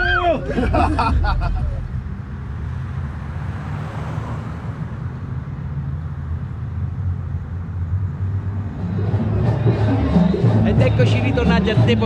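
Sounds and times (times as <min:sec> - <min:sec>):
car engine rumble: 0:00.0 - 0:12.0
tyres on the road: 0:00.0 - 0:12.0.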